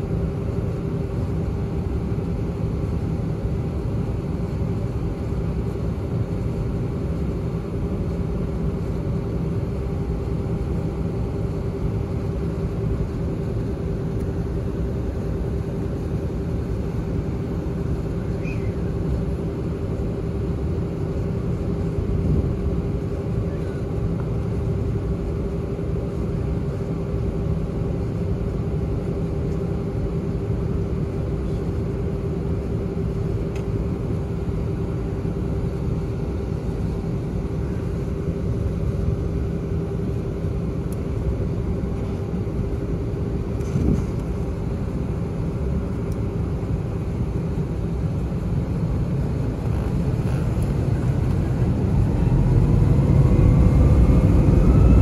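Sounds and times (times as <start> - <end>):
aircraft cabin rumble: 0.0 - 55.0
jet engines spooling up: 43.4 - 55.0.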